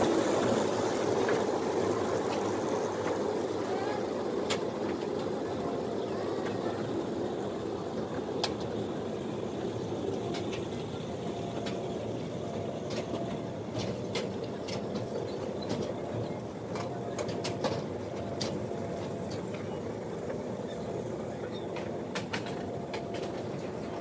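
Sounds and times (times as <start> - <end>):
ride cars running on rail: 0.0 - 24.0.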